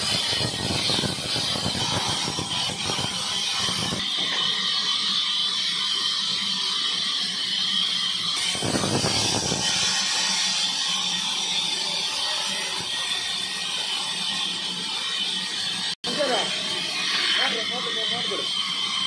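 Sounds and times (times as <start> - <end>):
band saw whine: 0.0 - 19.0.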